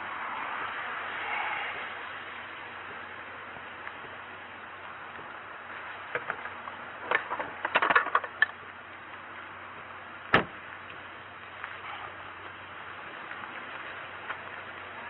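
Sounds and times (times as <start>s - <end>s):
steady hiss: 0.0s - 15.0s
clicks and rattles: 6.1s - 8.6s.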